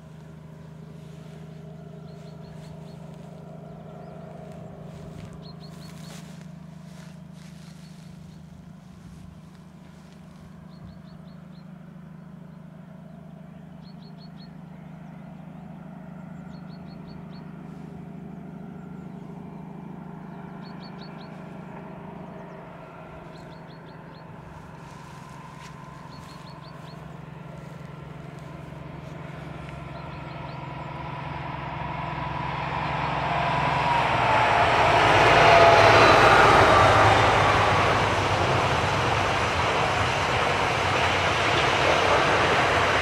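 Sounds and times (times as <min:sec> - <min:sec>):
diesel locomotive engine droning: 0:00.0 - 0:43.0
train wagons rolling on rails: 0:32.2 - 0:43.0.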